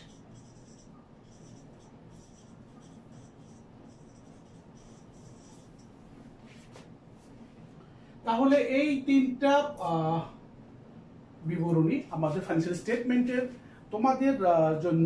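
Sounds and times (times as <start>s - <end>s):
marker pen writing on whiteboard: 0.0s - 6.9s.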